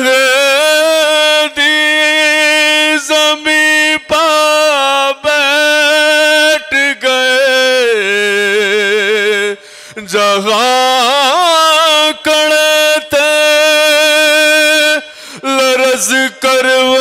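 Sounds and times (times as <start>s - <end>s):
man singing unaccompanied: 0.0s - 17.0s.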